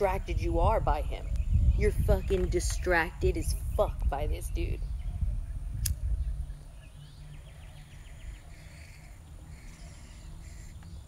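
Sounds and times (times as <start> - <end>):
low rumble on microphone: 0.0 - 11.0
sharp click: 5.8 - 6.0.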